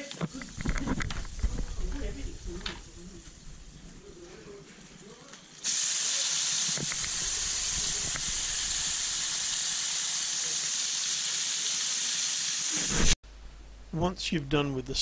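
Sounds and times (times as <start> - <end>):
steak sizzling in a pan: 5.4 - 13.2.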